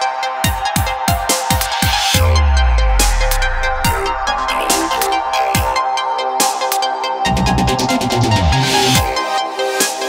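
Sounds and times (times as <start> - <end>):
deep electronic bass line: 2.2 - 6.0, 7.3 - 9.2.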